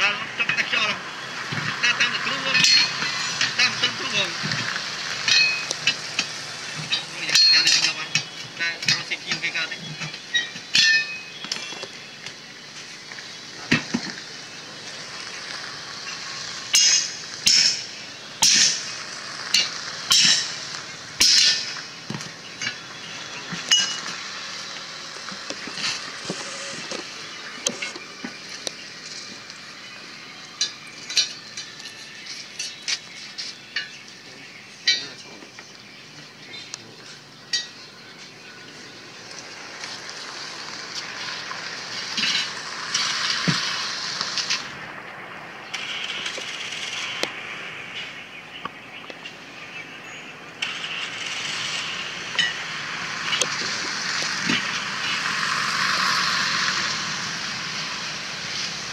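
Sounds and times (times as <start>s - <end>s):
metal tools clinking on wheel rim: 1.5s - 11.9s, 15.8s - 29.8s, 30.5s - 35.7s, 37.4s - 38.4s, 40.3s - 44.8s, 52.2s - 57.2s.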